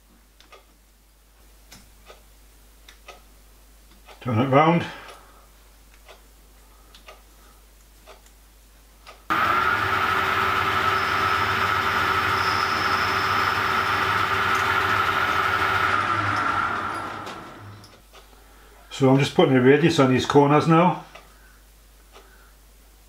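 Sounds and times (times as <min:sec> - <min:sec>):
metal lathe running: 0:09.3 - 0:17.9
tool cutting spinning discs: 0:09.3 - 0:17.9.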